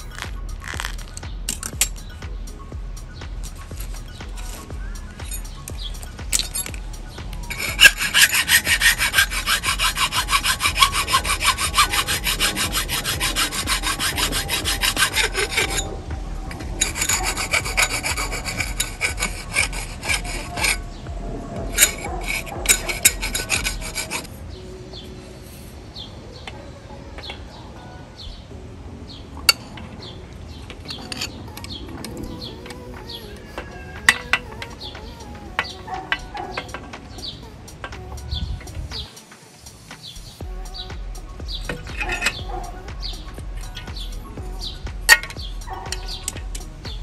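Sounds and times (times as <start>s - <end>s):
hand tool rasping: 0.0s - 2.1s, 3.4s - 20.8s, 21.6s - 24.3s, 30.9s - 32.4s, 41.7s - 43.0s, 45.1s - 47.0s.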